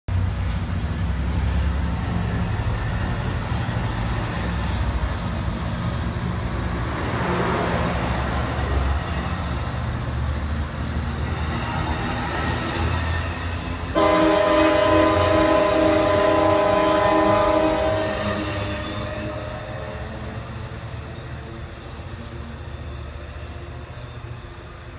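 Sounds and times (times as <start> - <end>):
rushing noise: 0.1 - 22.8
diesel train engine rumble: 0.1 - 24.9.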